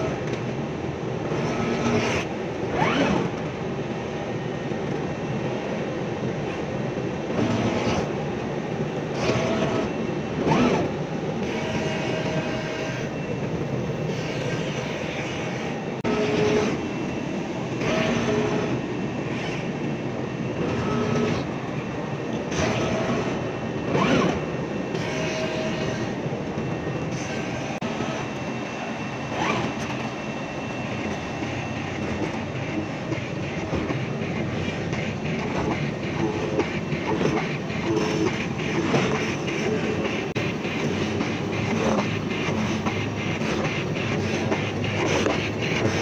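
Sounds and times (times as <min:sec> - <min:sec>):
cutting machine mechanical noise: 0:00.0 - 0:46.0
motor whines: 0:09.1 - 0:19.8, 0:20.5 - 0:46.0.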